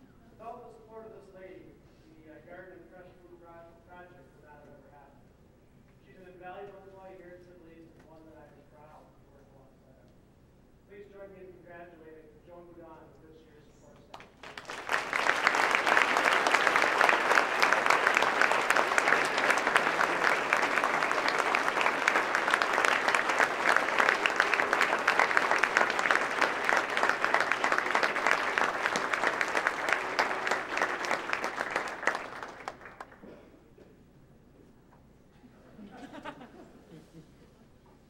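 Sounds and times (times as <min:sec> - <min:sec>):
audience applauding: 0:14.2 - 0:33.2.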